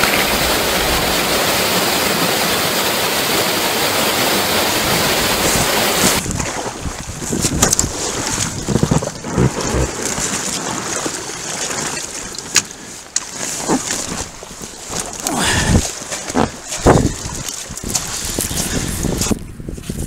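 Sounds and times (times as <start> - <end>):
wind buffeting microphone: 4.6 - 9.9, 15.4 - 20.0.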